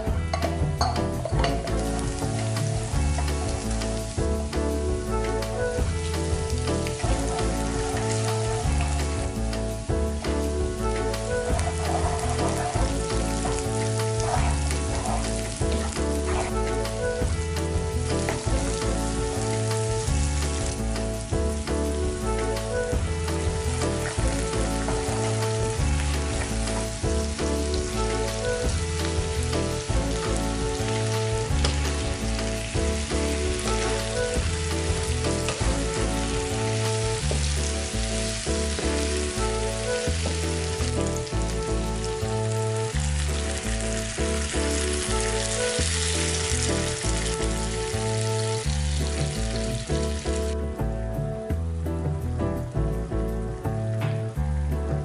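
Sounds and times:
background music with low notes: 0.0s - 55.0s
food sizzling in oil: 0.4s - 50.6s
water poured into hot pan: 23.5s - 50.6s.

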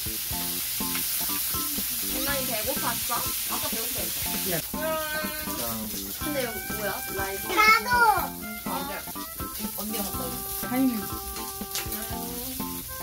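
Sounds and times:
meat sizzling on a grill: 0.0s - 13.0s
background music: 0.3s - 13.0s
child's voice: 1.7s - 2.9s, 4.8s - 5.6s, 7.2s - 9.1s, 10.0s - 12.8s.

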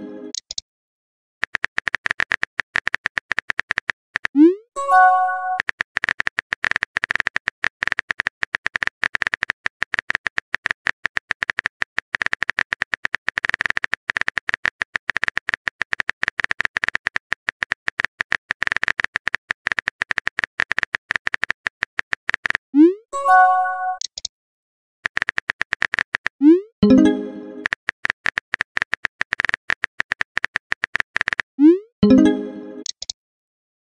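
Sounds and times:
phone keyboard clicks: 1.4s - 4.4s, 5.5s - 22.6s, 24.0s - 24.3s, 25.0s - 26.4s, 27.6s - 31.5s, 32.8s - 33.2s
rising notification tone: 22.8s - 24.0s, 26.4s - 27.6s, 31.6s - 32.9s.

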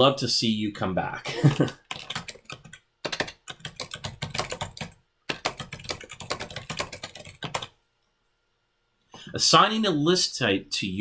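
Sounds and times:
computer keyboard typing: 1.6s - 7.8s.

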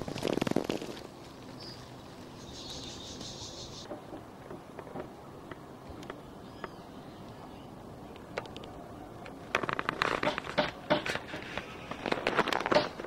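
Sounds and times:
grass rustling and crackling: 0.0s - 3.9s, 8.2s - 13.0s.

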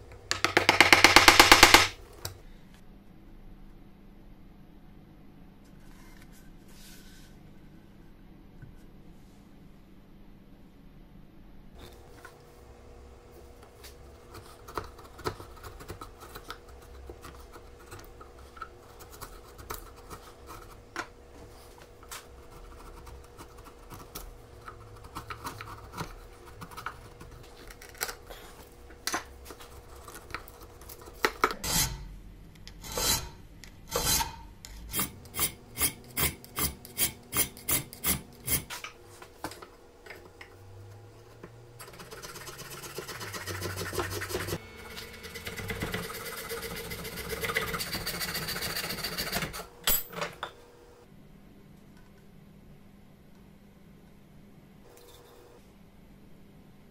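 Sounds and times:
file strokes: 32.8s - 38.7s, 41.8s - 49.7s.

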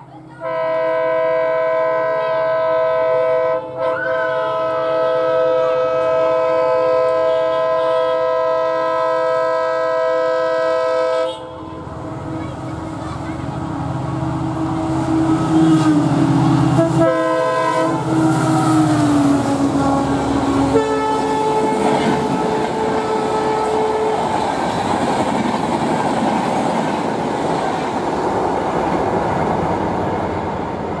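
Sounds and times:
diesel locomotive engine passing: 0.0s - 31.0s
train horn blast: 0.4s - 12.4s, 14.5s - 24.7s
wheels clattering on track: 18.0s - 31.0s.

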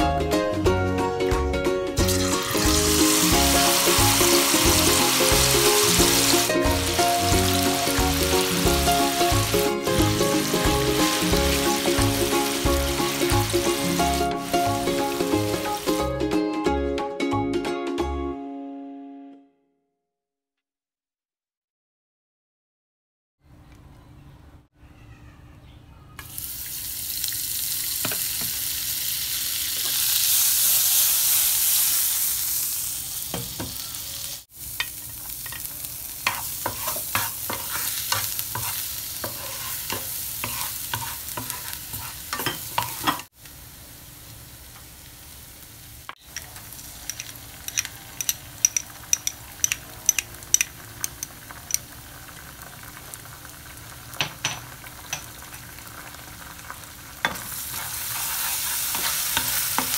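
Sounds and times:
butter sizzling in a frying pan: 2.0s - 16.0s, 26.2s - 59.9s
sharp popping of frying food: 2.0s - 16.0s, 26.2s - 45.2s, 46.0s - 59.9s
wooden spatula scraping a pan: 36.3s - 43.2s, 57.6s - 59.9s.

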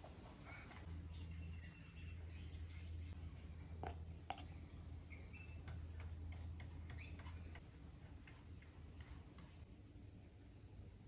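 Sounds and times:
brush dabbing in plastic cup: 0.0s - 3.2s, 5.4s - 9.6s
low steady hum: 0.0s - 11.0s
paintbrush ticks and scratches: 5.5s - 9.6s.

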